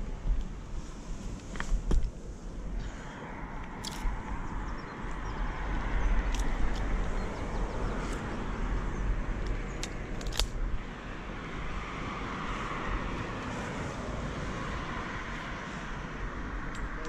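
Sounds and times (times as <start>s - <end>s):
wind buffeting microphone: 0.0s - 17.0s
sharp clicks: 9.4s - 10.6s.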